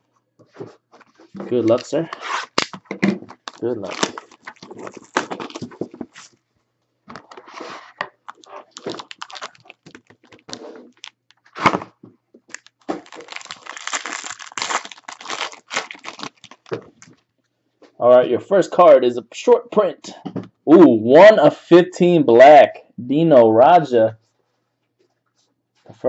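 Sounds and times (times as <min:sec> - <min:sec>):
foil wrapper crinkling and tearing: 0:01.7 - 0:06.3, 0:08.2 - 0:11.7, 0:12.5 - 0:17.2.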